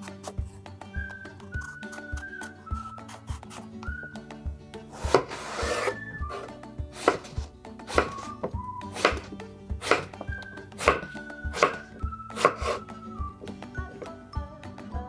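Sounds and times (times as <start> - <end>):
background music with steady beat: 0.0 - 15.0
knife chopping on wooden board: 1.6 - 3.6, 4.9 - 12.9.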